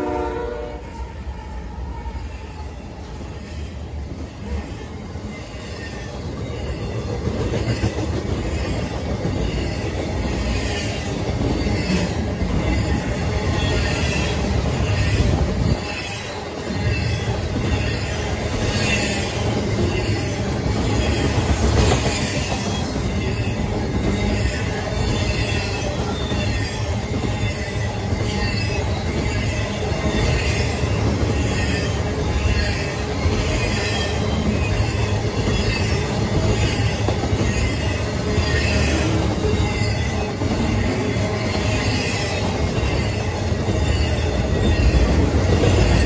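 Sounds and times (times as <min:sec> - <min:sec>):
freight train wheels rumbling: 0:00.0 - 0:46.0
train wheels clattering: 0:06.4 - 0:46.0.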